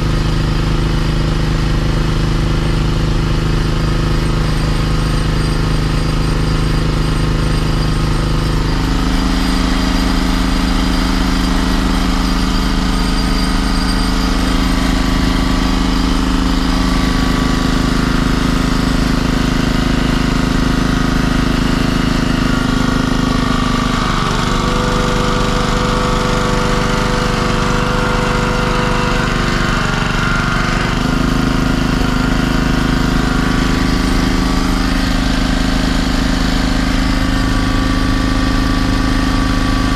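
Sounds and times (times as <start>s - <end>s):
small engine running: 0.0s - 39.9s.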